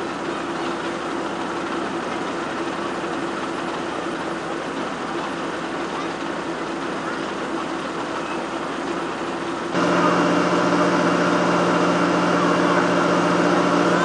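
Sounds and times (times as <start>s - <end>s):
motor engine humming: 0.0s - 14.0s
noisy wash: 9.6s - 14.0s.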